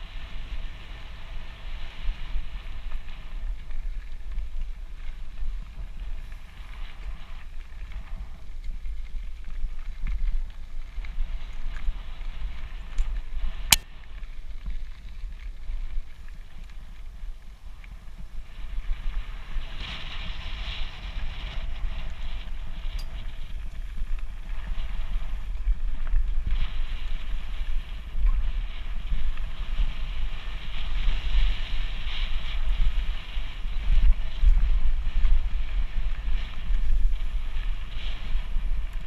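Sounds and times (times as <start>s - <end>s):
wind buffeting microphone: 0.0s - 39.0s.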